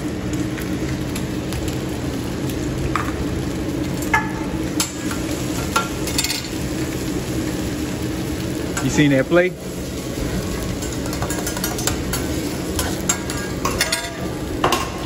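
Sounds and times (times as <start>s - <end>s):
food sizzling on griddle: 0.0s - 15.0s
metal utensils clinking on griddle: 4.1s - 6.6s, 8.7s - 9.1s, 10.2s - 15.0s.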